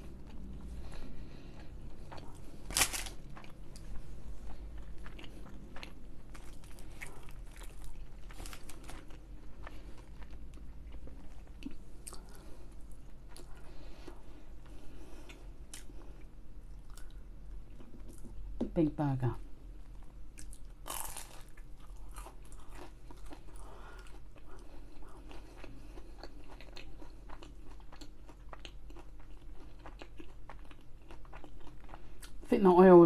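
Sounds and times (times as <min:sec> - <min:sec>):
crunchy chewing: 0:00.0 - 0:18.3, 0:19.8 - 0:32.4
crunchy bite: 0:02.1 - 0:03.6, 0:20.4 - 0:23.4.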